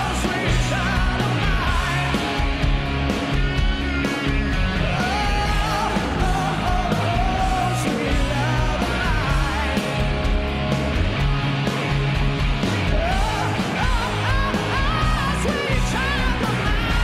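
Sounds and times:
rock music with singing: 0.0 - 17.0.

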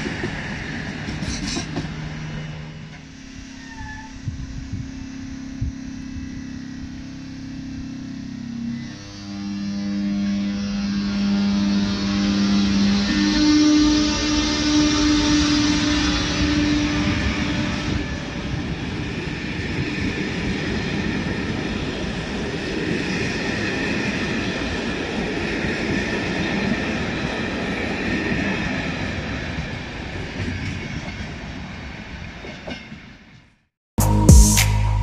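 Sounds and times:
train wheels clattering over rails: 0.0 - 3.1
steady locomotive tone: 0.0 - 35.0.

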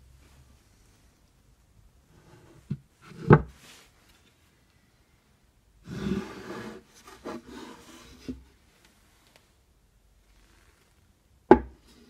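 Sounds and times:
wooden lid sliding in grooves: 5.8 - 8.4.

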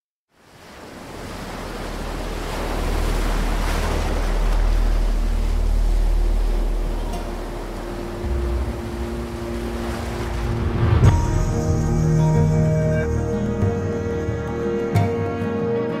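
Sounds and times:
ocean surf washing against rocks: 0.4 - 11.7.

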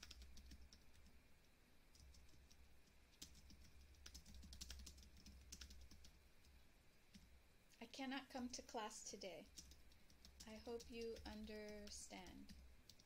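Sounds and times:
keystrokes on computer keyboard: 0.0 - 1.2, 1.9 - 7.3, 9.5 - 13.0
low steady hum: 0.0 - 13.0.

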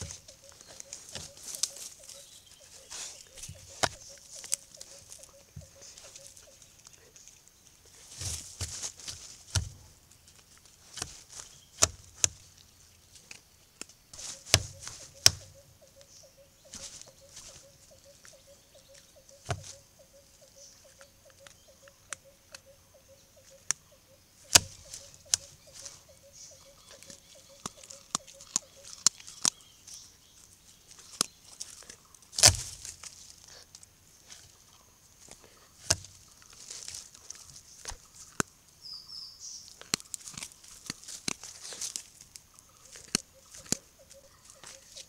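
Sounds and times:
animals moving through leaf litter: 0.0 - 9.6, 14.2 - 15.2, 35.3 - 37.8.

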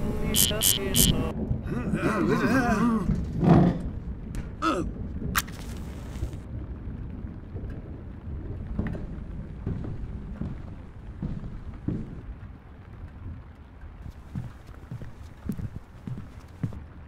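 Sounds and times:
low rumbling background: 0.0 - 17.0
match striking and hissing: 5.4 - 6.3.

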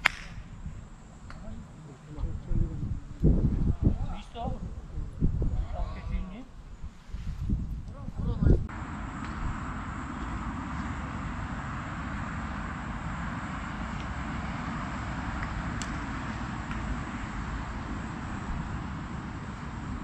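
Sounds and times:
faint sharp clicks: 15.4 - 16.0.

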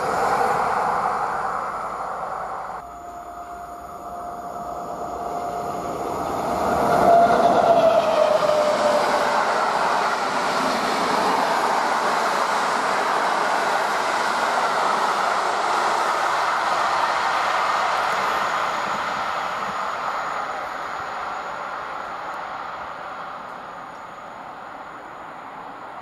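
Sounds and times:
whining tone falling in pitch: 0.0 - 10.0
electric locomotive passing: 0.0 - 26.0
train wheels rolling on track: 0.0 - 26.0.

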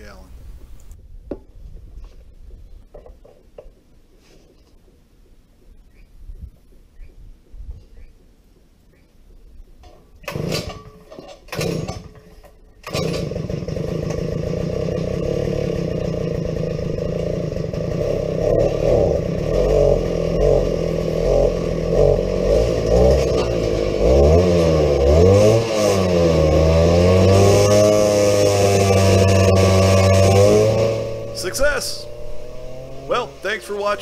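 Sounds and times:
recoil rope pull-start: 12.8 - 18.6
two-stroke tiller engine running: 12.8 - 34.0.

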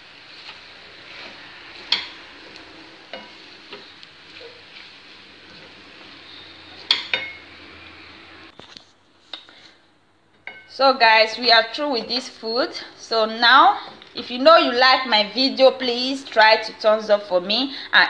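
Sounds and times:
pasta sizzling in a frying pan: 0.0 - 8.5.

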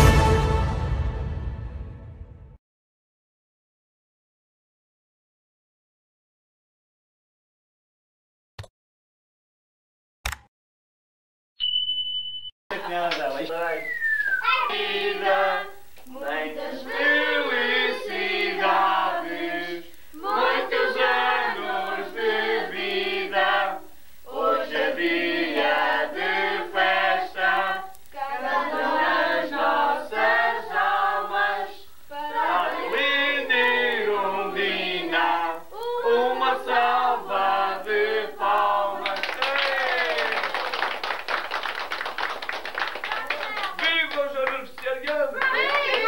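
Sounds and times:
group singing a birthday tune: 14.4 - 40.4, 43.3 - 46.0.

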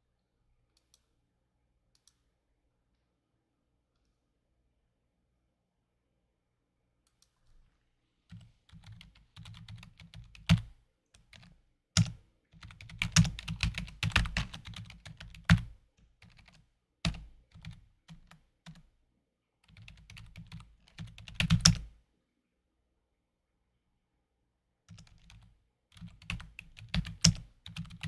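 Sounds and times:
typing on a keyboard: 8.3 - 18.8, 19.7 - 21.9, 24.9 - 28.0.

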